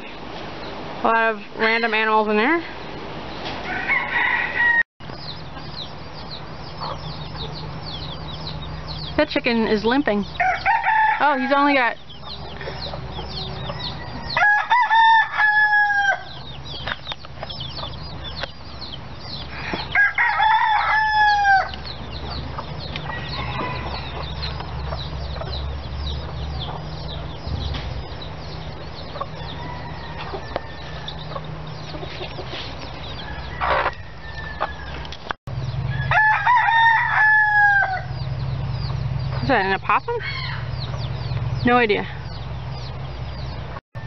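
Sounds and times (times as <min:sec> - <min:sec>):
rooster crowing: 0:03.6 - 0:04.9, 0:10.4 - 0:11.6, 0:13.2 - 0:16.5, 0:19.9 - 0:21.8, 0:23.0 - 0:24.4, 0:29.2 - 0:31.5, 0:33.2 - 0:35.1, 0:35.9 - 0:38.2
faint high bird chirps: 0:05.0 - 0:10.6.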